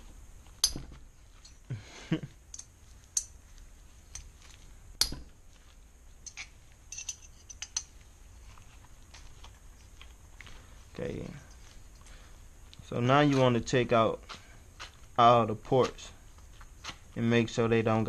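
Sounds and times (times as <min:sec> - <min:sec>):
small metal parts clicking: 0:02.5 - 0:03.4, 0:06.2 - 0:08.0.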